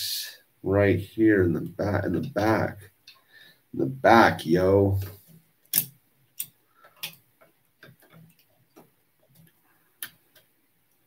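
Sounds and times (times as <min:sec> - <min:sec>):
plastic pieces clicking: 0:05.7 - 0:07.2.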